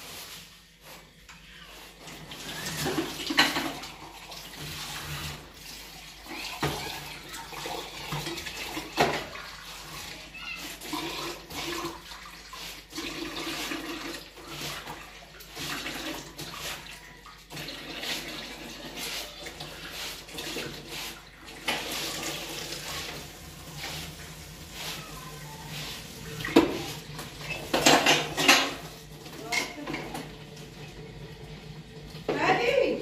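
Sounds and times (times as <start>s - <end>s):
water running and splashing: 1.8s - 32.3s.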